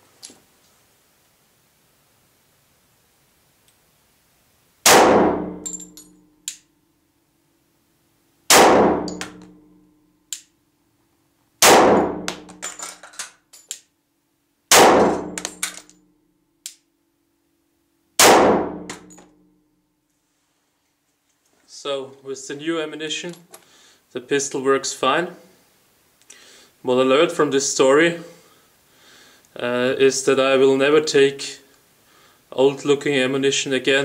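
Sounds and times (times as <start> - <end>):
pistol shots with echo: 4.8 - 5.7, 8.5 - 9.5, 11.6 - 12.6, 14.7 - 15.6, 18.2 - 19.1
light metallic clinks: 5.6 - 6.3.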